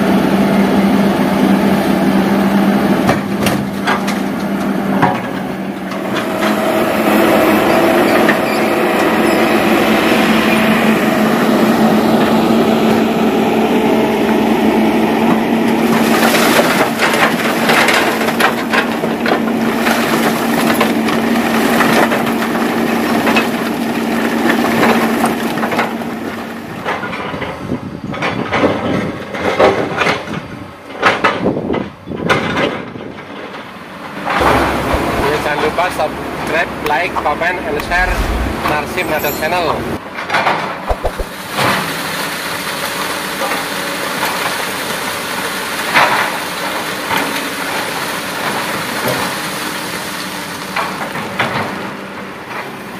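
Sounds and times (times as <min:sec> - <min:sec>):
excavator diesel engine: 0:00.0 - 0:27.3, 0:33.7 - 0:40.1.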